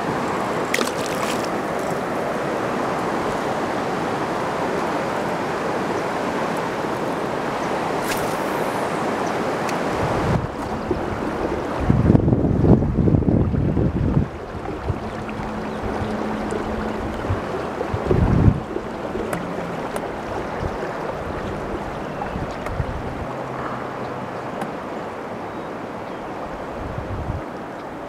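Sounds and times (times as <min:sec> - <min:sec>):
wind buffeting microphone: 0:00.0 - 0:24.4, 0:26.5 - 0:27.7
river water rushing: 0:00.0 - 0:28.0.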